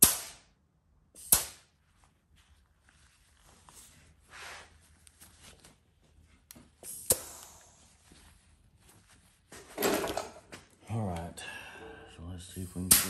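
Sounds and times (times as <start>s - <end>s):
sharp click: 1.2s - 1.6s
paper towel rustling: 1.8s - 6.4s, 7.8s - 9.9s.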